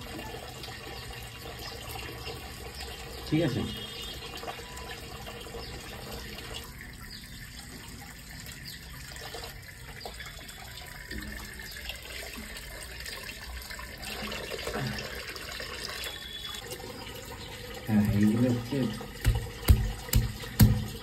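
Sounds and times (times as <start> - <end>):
tap water running into basin: 0.0 - 21.0
water splashing: 7.7 - 21.0.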